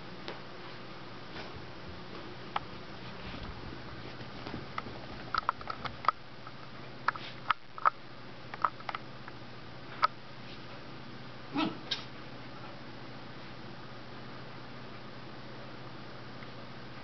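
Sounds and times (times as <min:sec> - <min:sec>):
dog rubbing and rolling on carpet: 0:02.7 - 0:05.1.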